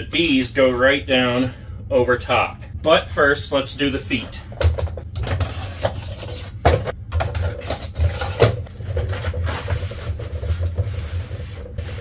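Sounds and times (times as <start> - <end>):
plastic rubbing and scraping: 4.8 - 6.6, 7.2 - 12.0.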